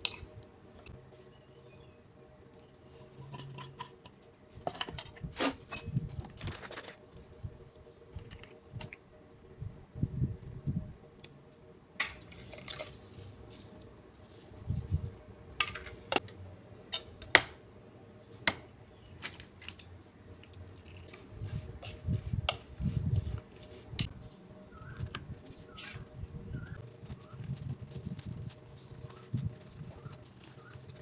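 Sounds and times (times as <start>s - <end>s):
soft rustling of stirring food: 11.5s - 16.2s, 19.2s - 24.2s, 24.8s - 31.0s.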